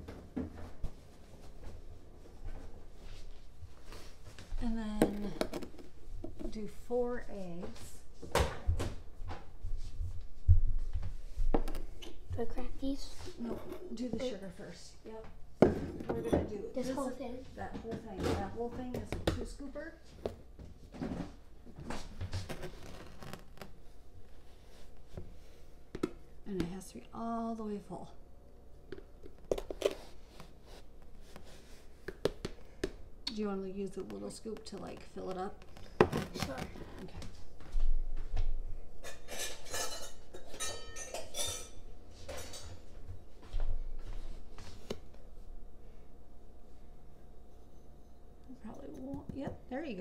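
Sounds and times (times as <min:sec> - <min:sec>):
metal measuring cups clinking: 0:39.0 - 0:42.6.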